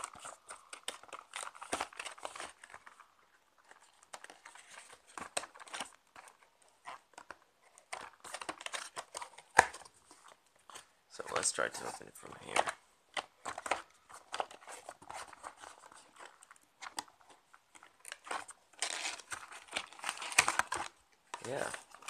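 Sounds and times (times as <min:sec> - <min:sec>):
plastic packaging crinkling: 0:00.0 - 0:22.0.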